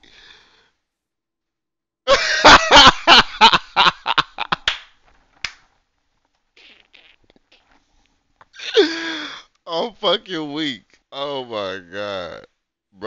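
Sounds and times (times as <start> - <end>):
man laughing hard: 2.1 - 4.7, 8.6 - 9.3.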